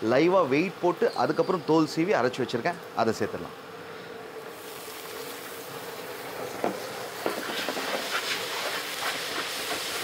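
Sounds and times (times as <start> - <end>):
onions sizzling in oil: 4.5 - 10.0.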